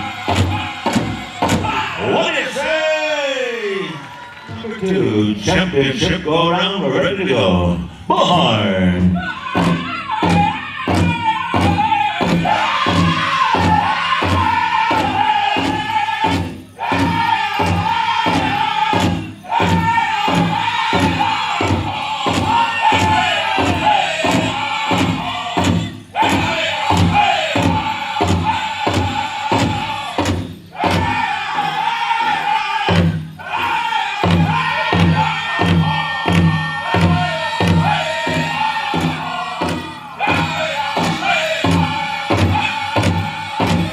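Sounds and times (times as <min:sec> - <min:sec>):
big drum beating: 0:00.0 - 0:02.1, 0:09.0 - 0:43.9
group singing in unison: 0:00.0 - 0:02.3, 0:09.2 - 0:43.9.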